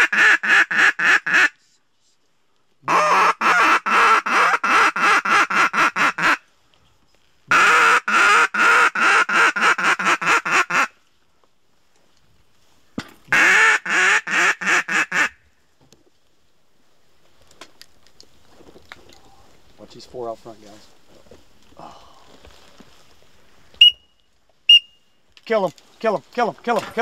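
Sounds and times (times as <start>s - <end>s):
duck call quacking: 0.0s - 1.6s, 2.9s - 6.4s, 7.5s - 10.9s, 13.3s - 15.4s.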